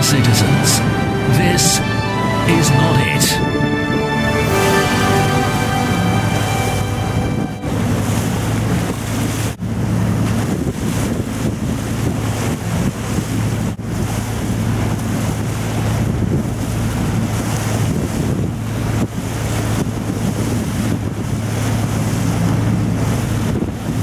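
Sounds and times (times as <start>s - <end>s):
boat engine humming: 0.0s - 24.0s
water along hull: 0.0s - 24.0s
wind on microphone: 6.7s - 24.0s.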